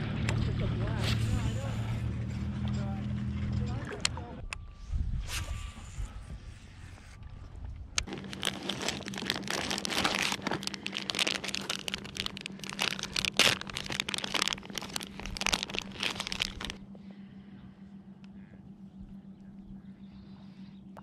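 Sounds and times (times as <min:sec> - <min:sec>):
plastic bag crinkling: 0:08.0 - 0:16.8.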